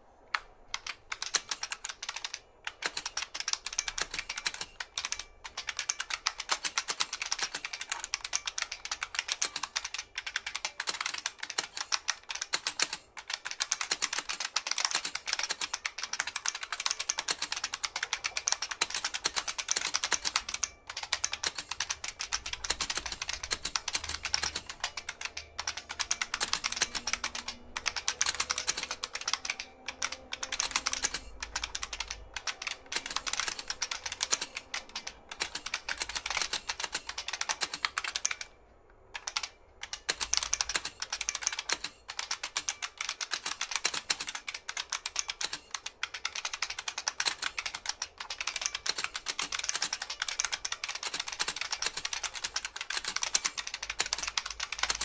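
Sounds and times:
mechanical keyboard clacking: 0.3 - 55.0.

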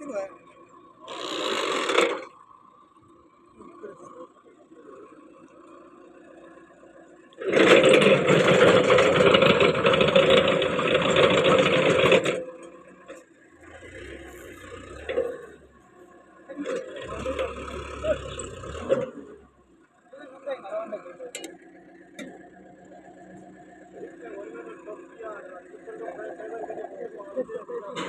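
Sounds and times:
tractor engine working hard: 0.0 - 28.0
auger boring into sandy soil: 1.1 - 2.3, 7.4 - 12.4, 13.6 - 15.6, 16.6 - 19.4.

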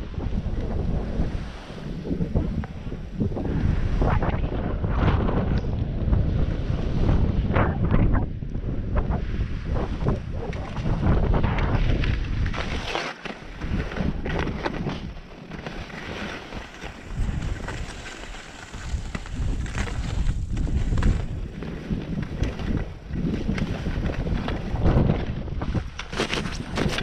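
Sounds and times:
wind buffeting microphone: 0.0 - 27.0
skis scraping over snow: 9.6 - 27.0.

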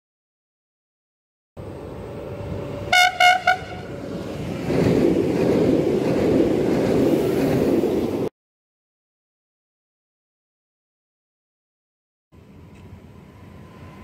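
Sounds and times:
train wheels rumbling past: 1.6 - 8.3, 12.4 - 14.0
train horn blasts: 2.8 - 4.0.

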